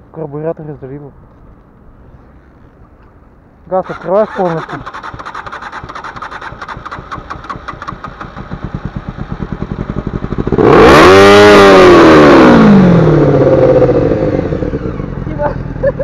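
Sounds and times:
motorcycle starter cranking: 3.8s - 8.6s
motorcycle engine revving: 3.8s - 15.9s.

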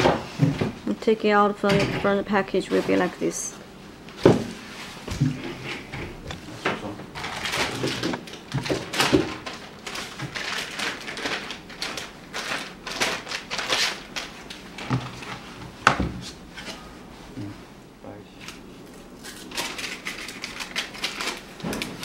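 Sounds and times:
plastic bag rustling and crinkling: 6.4s - 15.6s, 19.1s - 22.0s.

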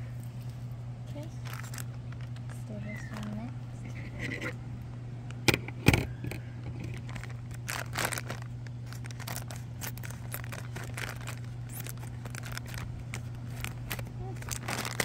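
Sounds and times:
steady low hum: 0.0s - 15.0s
plastic bag crinkling: 1.4s - 3.5s, 6.7s - 15.0s
scissors cutting plastic: 6.7s - 15.0s.

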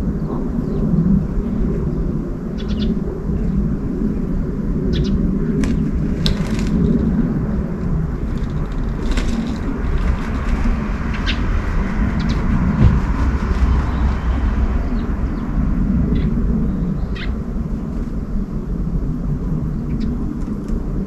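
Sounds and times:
low outdoor rumble: 0.0s - 21.0s
small birds chirping: 1.9s - 3.0s, 4.8s - 7.6s, 8.2s - 17.4s.

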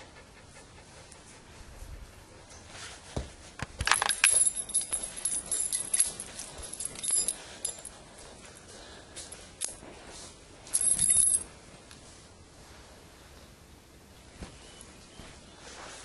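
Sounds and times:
keys jingling: 3.8s - 8.3s, 10.7s - 11.4s.

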